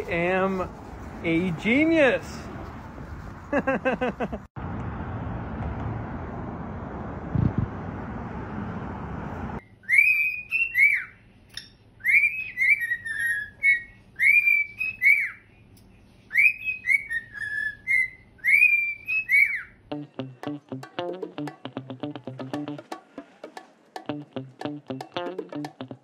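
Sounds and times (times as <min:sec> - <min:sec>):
cockatiel whistling a tune: 0:09.6 - 0:11.2, 0:12.0 - 0:15.5, 0:16.3 - 0:19.8.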